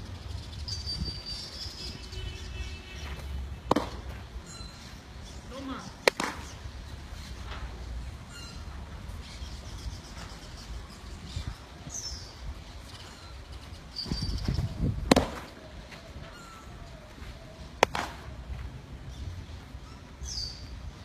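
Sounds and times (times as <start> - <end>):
wind rumbling on microphone: 0.0 - 2.6, 7.0 - 17.0
baseball smacking into glove: 3.2 - 4.2, 6.0 - 6.5, 15.0 - 15.6, 17.8 - 18.3.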